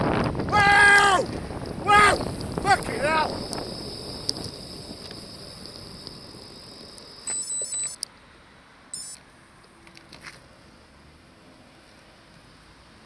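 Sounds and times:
wind noise: 0.0s - 8.0s
faint road noise: 0.0s - 13.0s
high electronic beeping: 2.1s - 8.0s, 9.0s - 9.2s.

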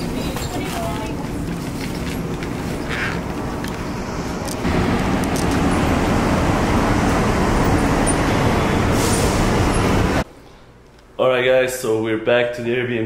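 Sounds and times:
quiet shop ambience: 0.0s - 4.8s, 9.8s - 12.2s
passing cars and road noise: 0.0s - 10.3s.

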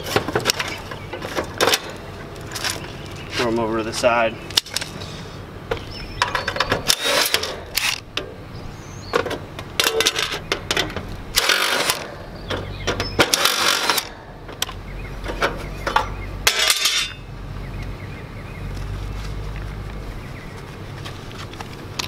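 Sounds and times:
cordless driver backing out screws: 6.4s - 8.0s, 9.8s - 14.7s
metal rattles and clinks: 15.2s - 17.2s.

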